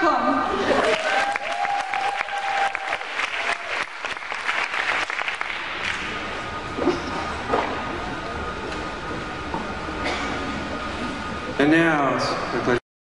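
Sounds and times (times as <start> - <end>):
long held cheer: 0.7 - 4.3
audience applauding: 0.7 - 6.2.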